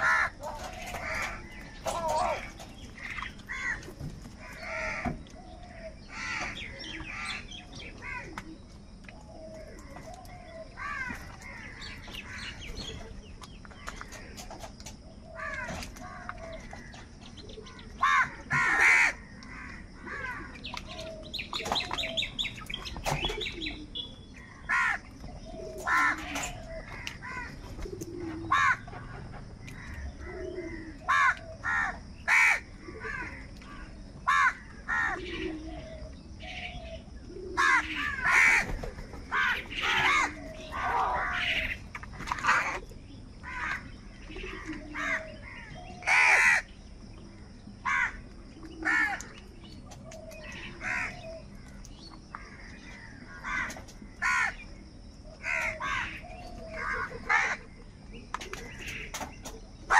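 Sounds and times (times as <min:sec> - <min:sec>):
crows cawing: 0:00.0 - 0:08.4, 0:09.8 - 0:12.7, 0:15.3 - 0:17.0, 0:17.6 - 0:21.2, 0:24.6 - 0:25.1, 0:25.8 - 0:29.0, 0:29.7 - 0:35.4, 0:37.4 - 0:41.8, 0:43.4 - 0:46.7, 0:47.8 - 0:48.2, 0:48.8 - 0:49.3, 0:50.4 - 0:51.8, 0:52.4 - 0:54.6, 0:55.4 - 0:57.6.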